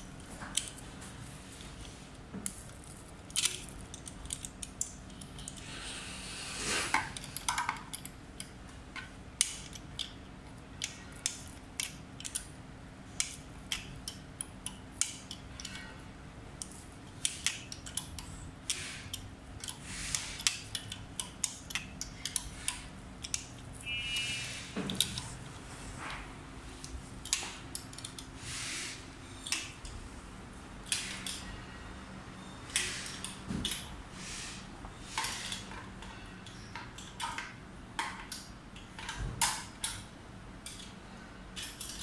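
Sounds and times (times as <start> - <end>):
small metallic clicks and taps: 10.8 - 12.5, 13.2 - 15.9, 16.6 - 25.4, 26.8 - 28.3, 35.2 - 41.0.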